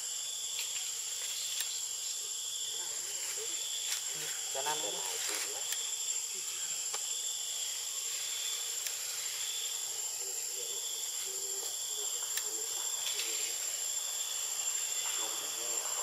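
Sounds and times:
insects droning: 0.0s - 16.0s
faint ticks: 0.6s - 1.8s, 8.8s - 9.0s.

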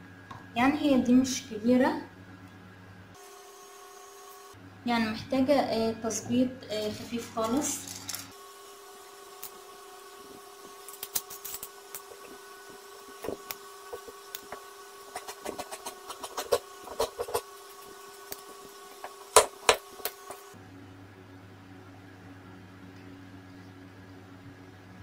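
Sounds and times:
shears cutting fabric: 13.0s - 20.6s.

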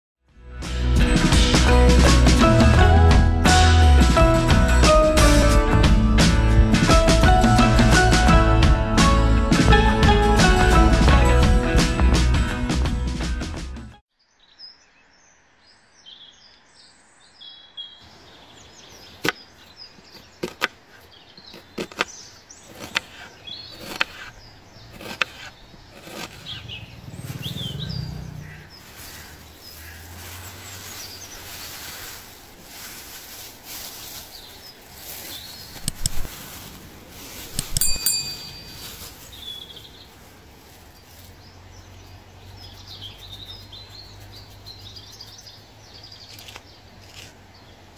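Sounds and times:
birds chirping: 14.2s - 47.9s.

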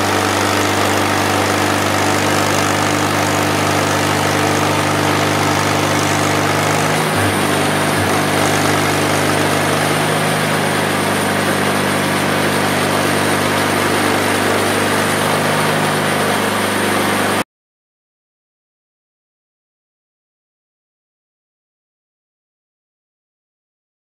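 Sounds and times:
bandsaw mill cutting wood: 0.0s - 17.4s.

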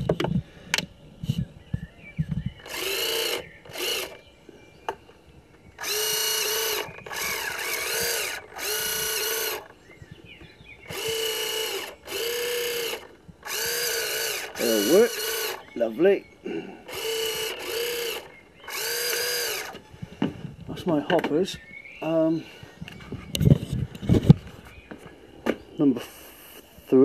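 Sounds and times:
small electric motors whirring: 2.5s - 4.2s, 5.8s - 9.8s, 10.8s - 15.8s, 16.8s - 20.0s.

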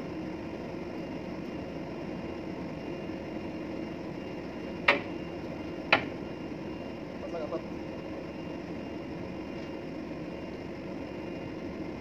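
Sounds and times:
ship machinery hum: 0.0s - 12.0s
sharp knocks: 4.9s - 5.1s.

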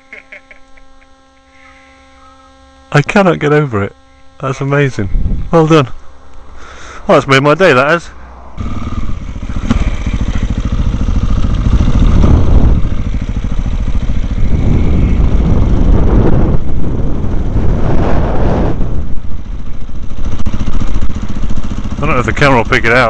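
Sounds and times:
motorcycle engine running: 8.2s - 23.0s.

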